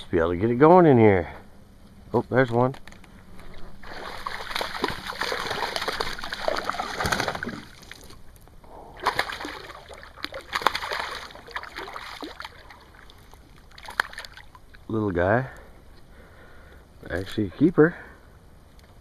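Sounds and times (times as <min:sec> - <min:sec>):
fish splashing at water surface: 0:03.7 - 0:08.3, 0:08.9 - 0:14.8.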